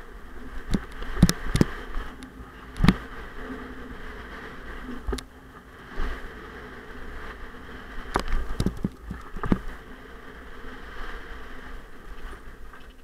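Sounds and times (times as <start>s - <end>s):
wind on microphone: 0.0s - 13.0s
bike knocks and rattles: 8.2s - 9.7s.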